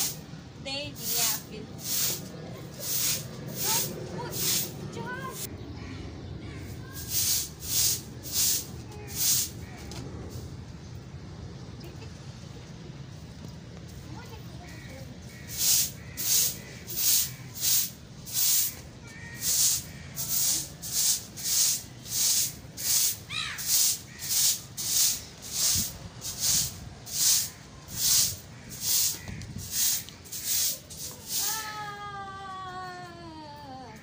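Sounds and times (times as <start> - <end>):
broom sweeping concrete: 0.0 - 0.2, 0.8 - 5.5, 6.6 - 10.5, 15.2 - 31.9.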